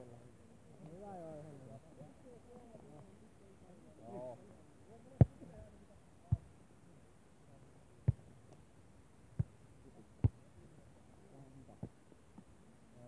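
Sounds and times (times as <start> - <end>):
volleyball struck with dull thumps: 5.2 - 5.5, 8.0 - 8.3, 9.4 - 9.6, 10.2 - 10.4.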